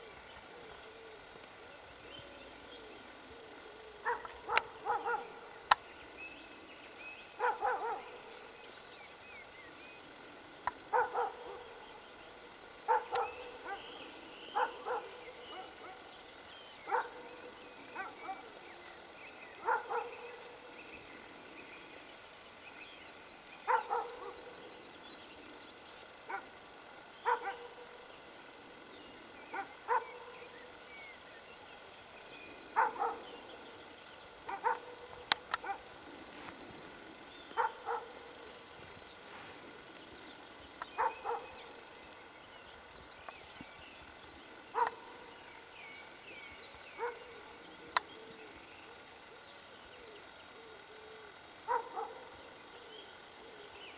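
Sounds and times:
animal barking: 3.5s - 5.6s, 7.4s - 8.3s, 10.8s - 11.9s, 12.8s - 16.1s, 16.8s - 18.6s, 19.6s - 20.8s, 23.6s - 24.6s, 26.3s - 26.6s, 27.2s - 28.1s, 29.5s - 30.4s, 32.7s - 33.7s, 34.4s - 36.0s, 37.5s - 38.7s, 40.9s - 41.7s, 44.7s - 45.3s, 46.9s - 47.6s, 51.6s - 52.6s.

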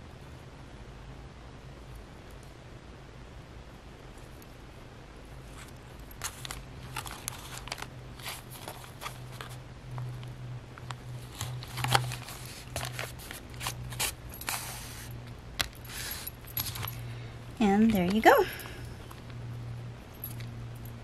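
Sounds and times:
low steady hum: 0.0s - 21.0s
paper rustling and crinkling: 5.5s - 10.3s, 10.9s - 15.1s.

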